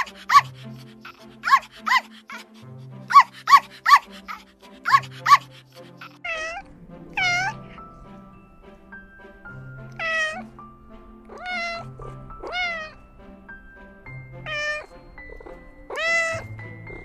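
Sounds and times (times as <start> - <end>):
puppy yapping: 0.0 - 7.8, 10.0 - 10.5, 11.3 - 13.0, 14.4 - 17.0
background music: 0.0 - 17.0
kitten meowing: 6.0 - 7.8, 9.9 - 10.5, 11.3 - 13.0, 14.4 - 17.0.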